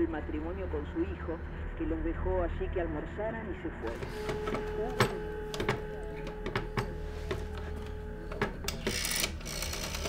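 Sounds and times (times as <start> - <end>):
telephone dial tone: 3.9 - 10.0
telephone handset clicks and knocks: 4.2 - 7.7.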